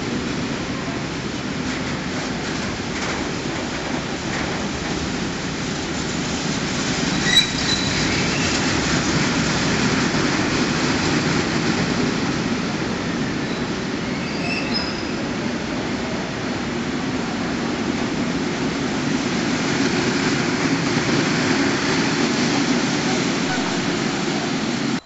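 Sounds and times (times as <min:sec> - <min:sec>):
train wheels rumbling on rail: 0:00.0 - 0:25.0
sharp click with high squeal: 0:14.4 - 0:15.1.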